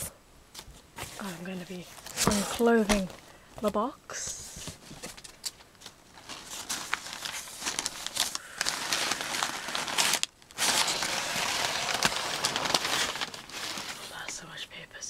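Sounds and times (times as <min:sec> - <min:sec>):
packing paper crinkling: 0:04.6 - 0:14.4.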